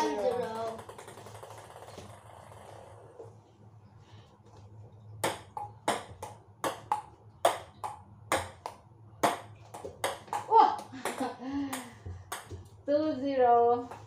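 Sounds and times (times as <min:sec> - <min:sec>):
ball bouncing on table: 0:00.0 - 0:02.2, 0:05.2 - 0:12.7
table tennis ball hitting paddles: 0:00.0 - 0:02.2, 0:05.2 - 0:12.8.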